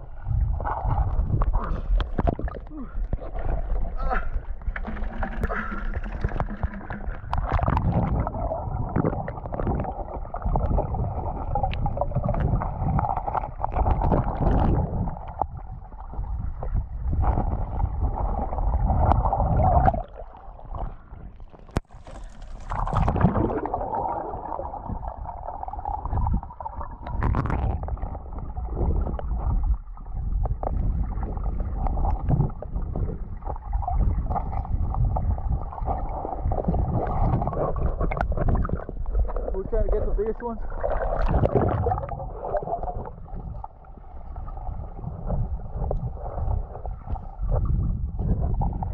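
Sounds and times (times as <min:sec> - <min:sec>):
stream water sloshing and gurgling: 0:00.0 - 0:48.9
water splash: 0:04.7 - 0:15.1, 0:21.7 - 0:28.1, 0:40.5 - 0:43.5.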